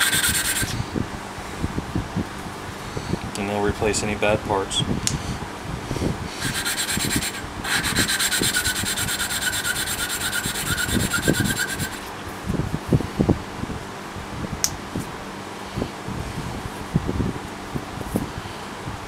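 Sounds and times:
valve grinding against seat: 0.0s - 0.8s, 6.4s - 12.1s.

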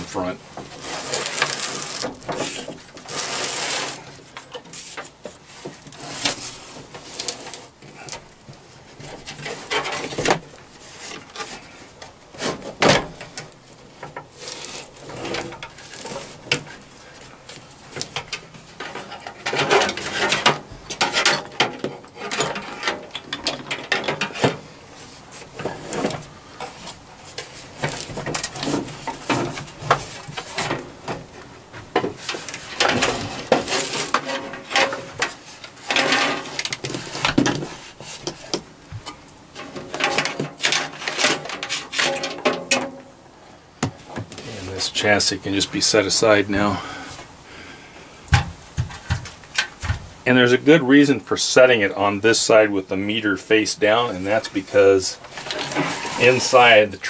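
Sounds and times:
metal scraping on metal: 0.0s - 8.2s, 32.2s - 38.4s, 53.8s - 57.0s.

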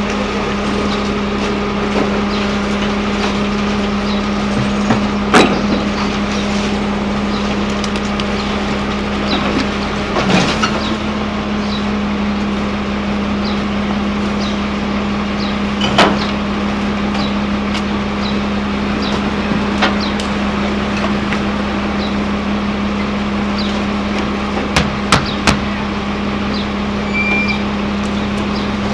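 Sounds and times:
garbage truck engine humming: 0.0s - 28.9s
bins banging against truck: 4.4s - 6.2s.

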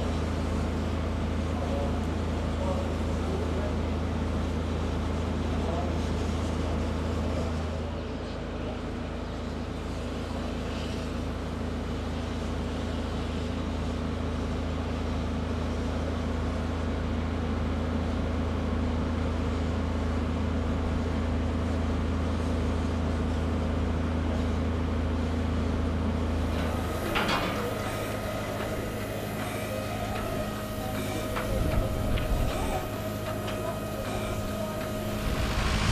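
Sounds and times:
low machine hum: 0.0s - 35.9s
higher steady tones: 26.6s - 35.9s.

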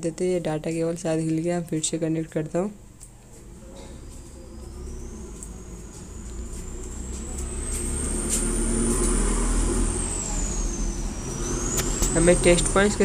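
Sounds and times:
vehicle engine rumbling: 3.3s - 13.0s
high-pitched whine: 3.4s - 13.0s.

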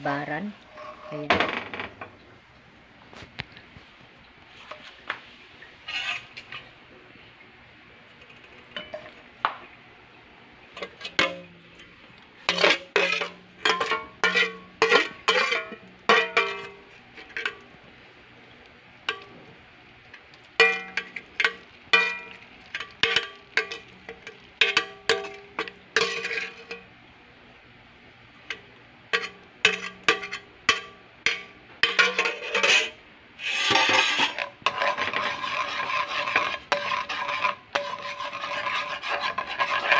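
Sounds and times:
spoon scraping in wok: 0.6s - 1.3s, 5.9s - 6.7s, 10.8s - 17.6s, 20.1s - 26.9s, 29.1s - 39.9s.

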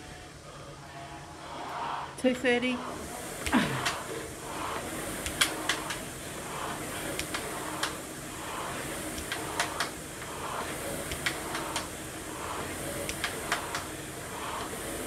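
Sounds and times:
rowing machine flywheel whooshing: 0.0s - 15.0s.

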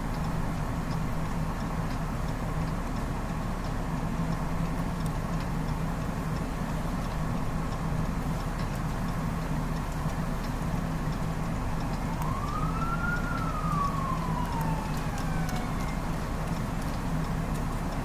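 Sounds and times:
faint ticks: 0.1s - 18.0s
siren wailing: 11.9s - 17.0s.

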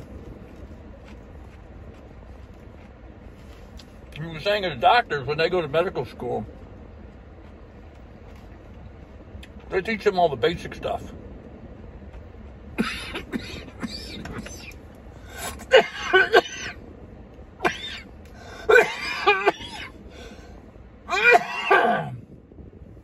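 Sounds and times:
man coughing hard: 12.8s - 14.6s, 15.5s - 16.8s, 17.6s - 18.0s, 18.7s - 19.9s, 21.1s - 22.2s.

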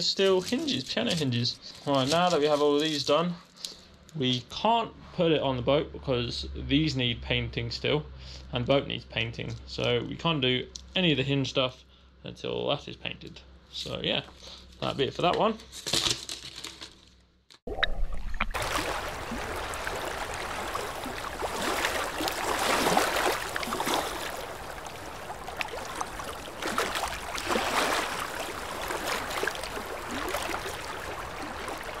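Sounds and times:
water sloshing and lapping: 0.0s - 3.6s, 17.7s - 32.0s.

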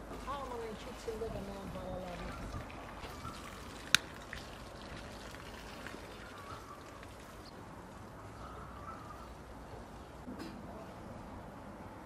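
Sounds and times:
hose water splashing on soil: 0.0s - 7.4s.

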